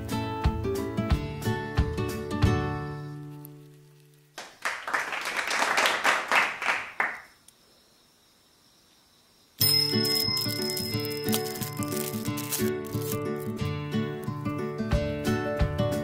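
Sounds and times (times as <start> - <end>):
background music: 0.0 - 3.1, 9.7 - 16.0
applause: 4.4 - 7.3.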